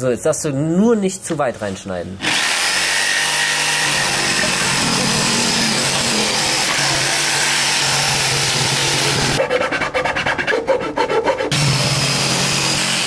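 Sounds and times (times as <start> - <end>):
jigsaw cutting wood: 2.2 - 9.4, 10.9 - 13.0.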